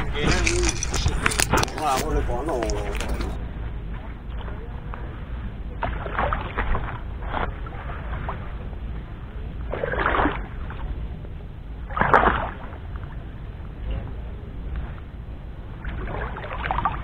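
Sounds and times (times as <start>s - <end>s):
pond water sloshing and splashing: 0.0s - 11.1s, 11.8s - 13.4s, 14.7s - 17.0s
steady low rumble: 0.0s - 17.0s.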